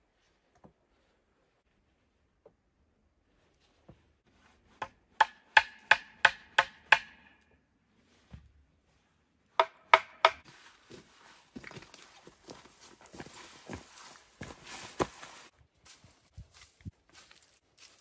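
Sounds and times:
hand tool chopping blows: 4.8s - 7.4s, 9.6s - 10.4s.

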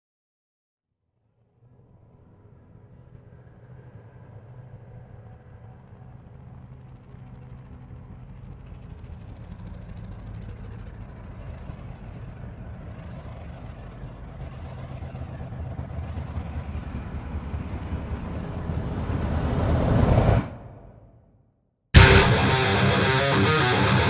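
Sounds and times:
low rumbling noise: 16.3s - 21.2s.

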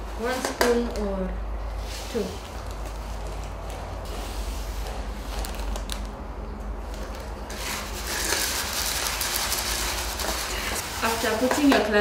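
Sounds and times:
popcorn kernels scraping plates: 7.5s - 12.0s.

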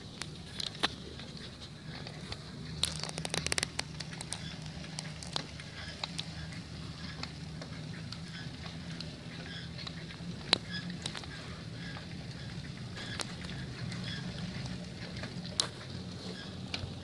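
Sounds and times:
bike wheels rumbling on pavement: 0.0s - 17.0s
crackling clicks and rattles: 0.0s - 17.0s.

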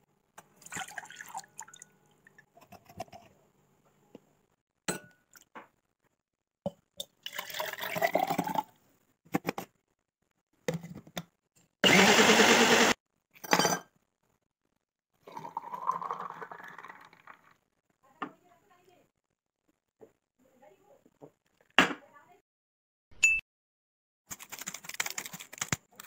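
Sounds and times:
drink poured into a glass: 0.6s - 1.9s, 7.1s - 8.7s, 15.2s - 17.6s
liquid poured into a bowl: 0.6s - 2.4s, 7.1s - 8.7s, 15.2s - 17.6s
spoon and glass clinking: 4.9s - 5.3s, 13.4s - 13.9s
small blender running: 11.8s - 13.0s.

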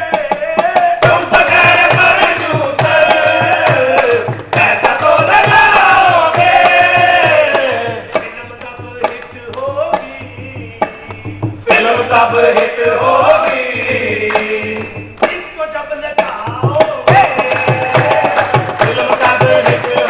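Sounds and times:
hand drum beat: 0.0s - 20.0s
voices singing long notes: 9.7s - 15.2s.

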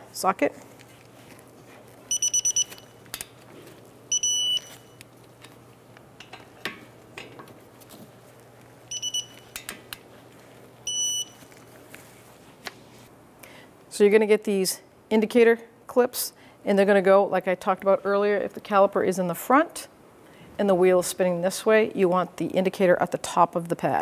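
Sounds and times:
torque wrench beeping: 2.1s - 3.0s, 4.1s - 5.0s, 8.9s - 9.6s.

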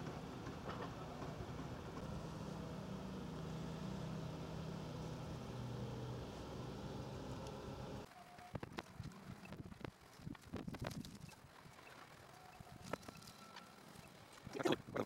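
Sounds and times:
crane diesel engine running: 0.0s - 8.1s.

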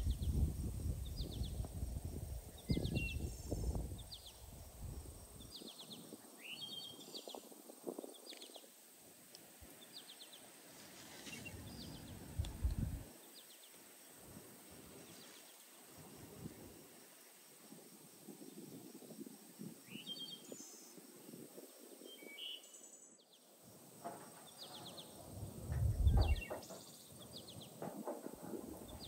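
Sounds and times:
small birds chirping: 0.0s - 14.3s, 19.8s - 23.6s, 24.3s - 29.0s
dull low handling knocks: 24.0s - 29.0s.

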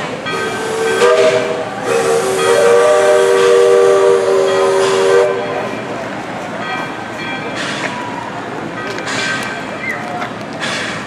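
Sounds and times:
hiss of steam: 0.3s - 5.4s
steam locomotive whistle: 0.3s - 5.7s.

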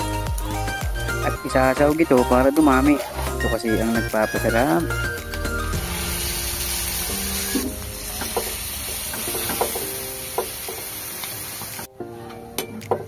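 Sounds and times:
food sizzling in wok: 5.1s - 11.9s.

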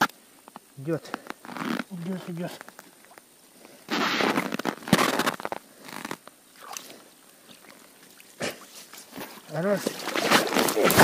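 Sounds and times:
snow and slush crunching: 3.6s - 11.0s.

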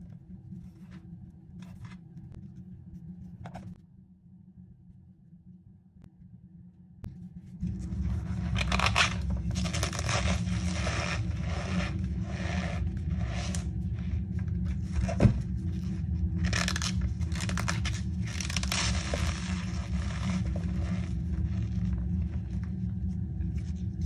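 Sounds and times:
steady low hum: 0.0s - 24.0s
powdery crunching and squeaking: 8.0s - 22.6s.

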